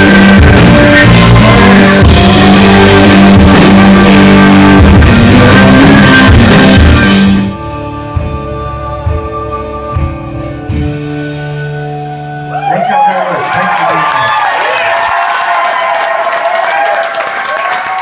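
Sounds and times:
live rock band playing: 0.0 - 13.4.

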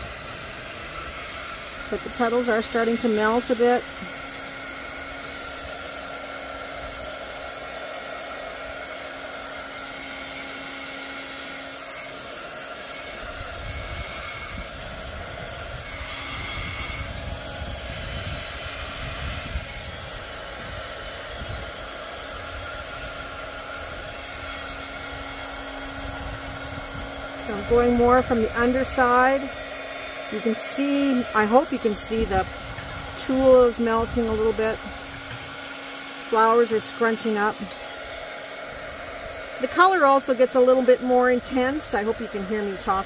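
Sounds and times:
heat gun fan hissing: 0.0 - 43.0
wind buffeting microphone: 13.2 - 24.2, 25.9 - 29.6, 30.8 - 35.6.

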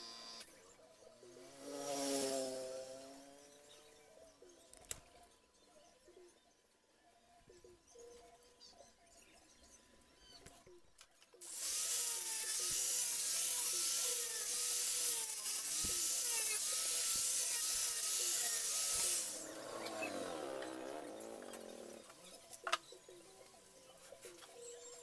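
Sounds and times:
angle grinder sanding plywood: 11.4 - 22.1.

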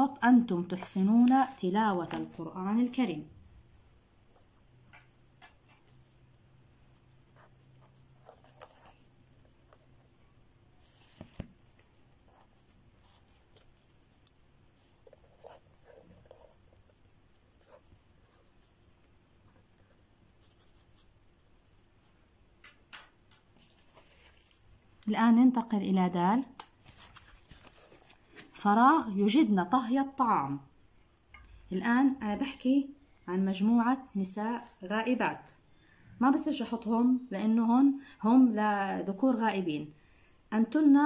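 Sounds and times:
marker pen writing on paper: 5.0 - 10.2, 10.8 - 22.2.

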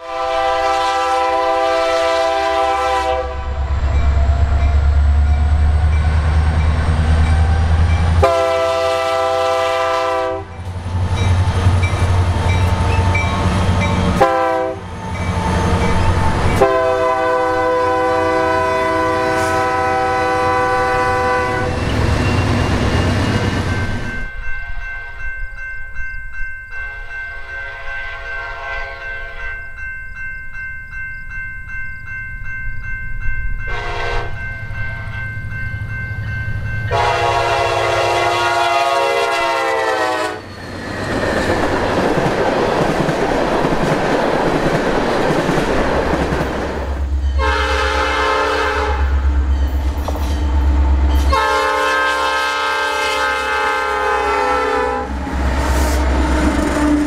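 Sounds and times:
train air horn blasts: 0.0 - 3.7, 8.2 - 10.6, 14.1 - 14.9, 16.6 - 21.9, 26.9 - 29.5, 33.7 - 35.1, 36.9 - 40.5, 47.4 - 49.2, 51.2 - 57.0
faint train horn: 0.0 - 3.8, 8.2 - 10.6, 12.8 - 15.0, 16.6 - 21.9, 26.8 - 29.5, 33.7 - 35.1, 36.9 - 40.5, 47.4 - 49.3, 51.2 - 57.0
locomotive engines rumbling: 0.2 - 24.5, 31.6 - 57.0.

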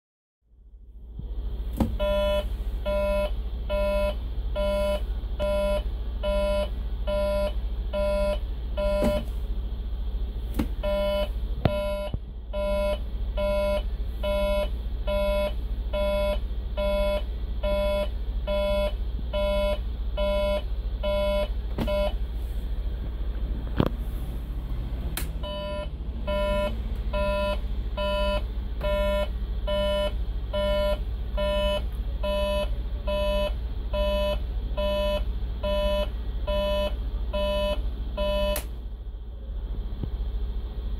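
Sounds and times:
diesel engine idling: 0.5 - 40.9
turn-signal beeper: 2.0 - 9.3, 10.8 - 22.2, 25.4 - 38.6
indicator switch clicks: 38.5 - 38.7.

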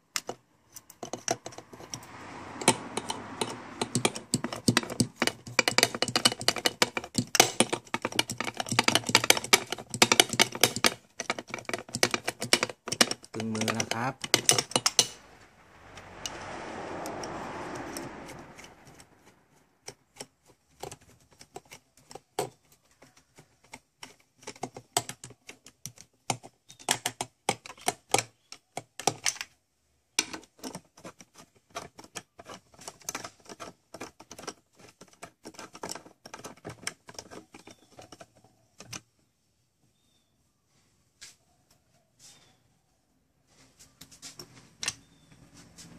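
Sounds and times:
rushing noise: 14.8 - 19.8.

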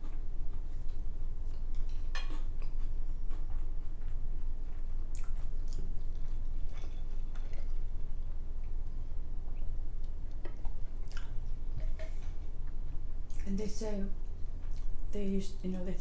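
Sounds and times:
chewing: 0.1 - 8.9, 9.6 - 13.5.

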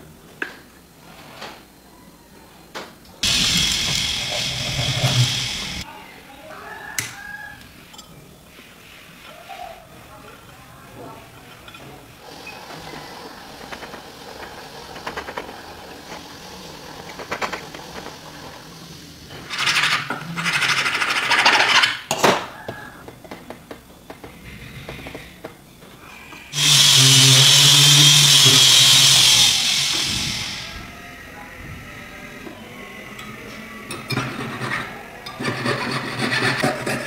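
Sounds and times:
loud noisy burst: 3.2 - 5.8, 26.5 - 30.9
small power tool humming: 3.2 - 5.8, 26.5 - 30.8.

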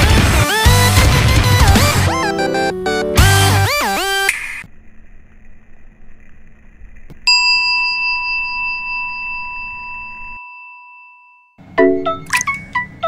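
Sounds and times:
faint steady hum: 4.6 - 10.4
struck bell ringing: 7.3 - 12.8.

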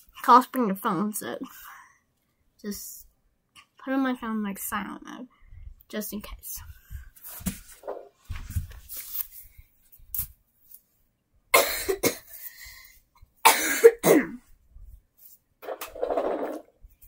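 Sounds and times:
person coughing: 11.6 - 12.4, 13.4 - 14.5.

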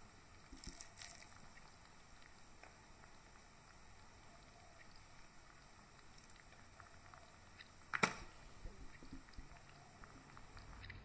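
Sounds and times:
wet squelch of squeezed fruit: 0.5 - 2.3
wet clicks of crushed pulp: 7.6 - 8.4.

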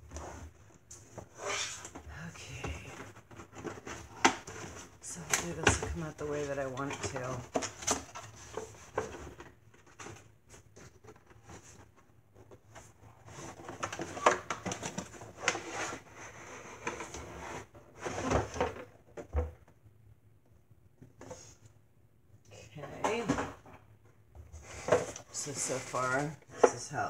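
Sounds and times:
cardboard rustling and scraping: 0.0 - 19.0, 24.4 - 27.0.

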